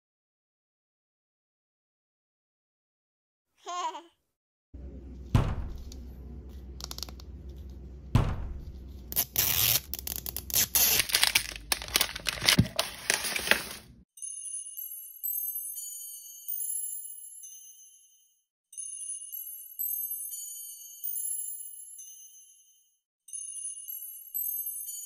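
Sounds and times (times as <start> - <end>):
wrapper tearing and crinkling: 9.2 - 13.9.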